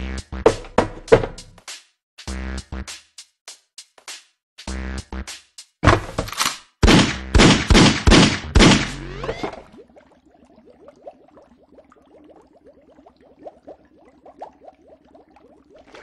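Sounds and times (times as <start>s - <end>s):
cartoon gunfire: 6.8s - 9.5s.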